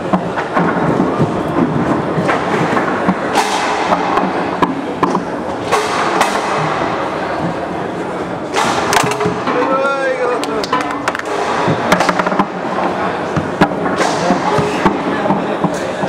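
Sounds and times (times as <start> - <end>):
foosball rods rattling: 0.0 - 7.6, 8.4 - 16.0
figures knocking ball: 8.5 - 16.0.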